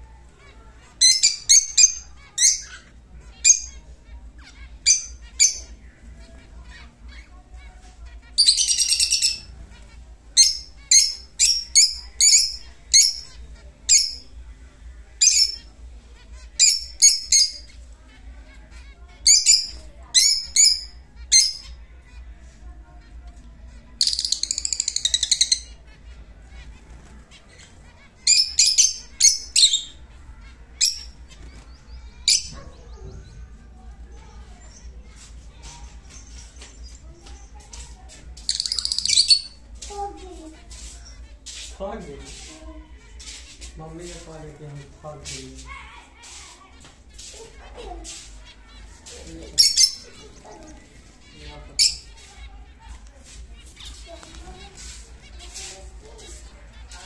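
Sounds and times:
lovebirds chirping: 0.0s - 57.0s
lovebird chattering calls: 0.9s - 3.8s, 4.4s - 5.8s, 8.2s - 9.5s, 10.4s - 14.3s, 15.2s - 15.7s, 16.4s - 17.9s, 18.7s - 21.8s, 24.0s - 25.8s, 27.5s - 30.0s, 34.4s - 44.3s, 47.2s - 52.6s.

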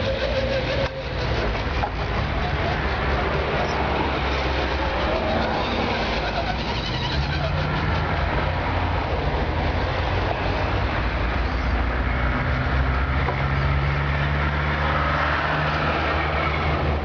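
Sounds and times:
electric motor and gears whining: 0.0s - 11.7s.

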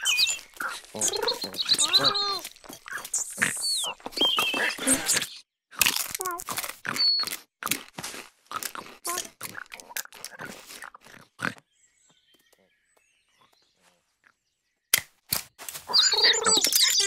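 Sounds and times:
faint high chirps: 0.0s - 5.4s
cartoon animal grunts and snuffles: 0.6s - 11.6s.

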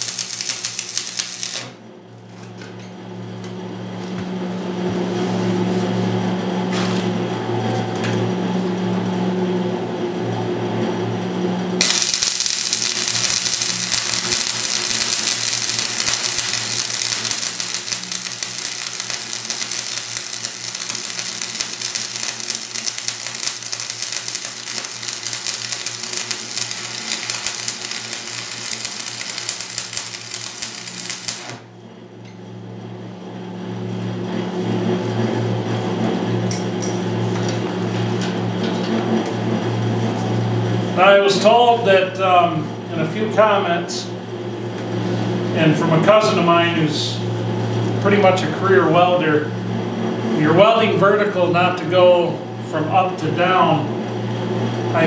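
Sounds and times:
welding arc crackle and hiss: 0.0s - 1.8s, 11.8s - 31.7s
low buzzing hum: 0.0s - 3.8s, 8.5s - 38.6s.

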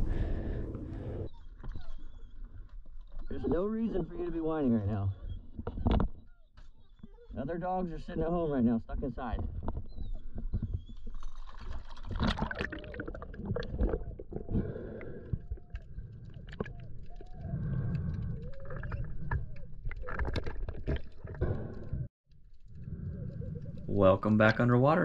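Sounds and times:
underwater bubbles gurgling: 11.5s - 22.1s
underwater clicks and knocks: 16.4s - 22.0s.

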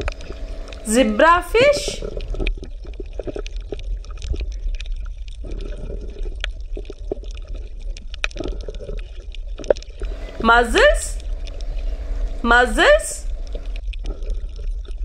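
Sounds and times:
low rumble: 0.0s - 2.5s, 10.0s - 13.8s
water bubbling and gurgling: 0.0s - 10.5s, 11.2s - 12.5s, 13.2s - 14.3s
small clicks and pops: 2.0s - 10.2s.

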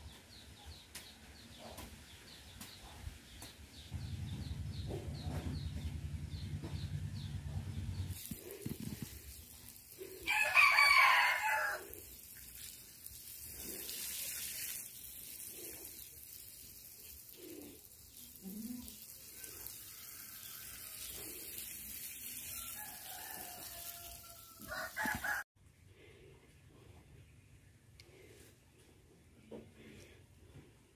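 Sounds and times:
hose water spraying onto soil: 7.9s - 25.4s
rooster crowing: 10.2s - 11.9s, 22.5s - 25.4s.

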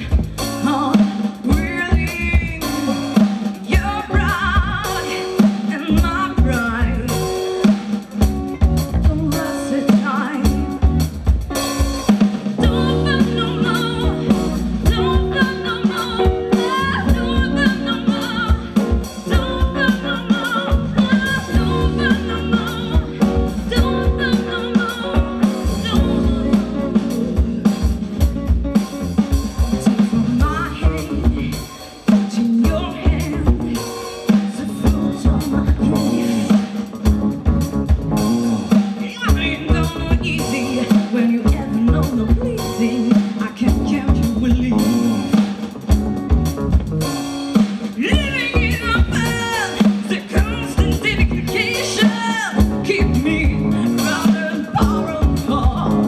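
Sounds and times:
woman singing: 0.0s - 11.7s, 12.5s - 28.8s, 29.8s - 46.0s, 47.6s - 56.0s
live funk-rock band: 0.0s - 56.0s.

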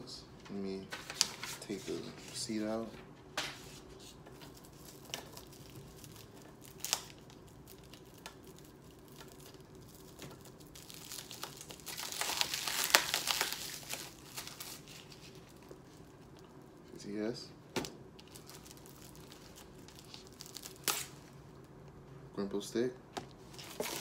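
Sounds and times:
packaging crinkling and tearing: 4.3s - 16.8s, 17.8s - 21.7s, 23.4s - 24.0s.

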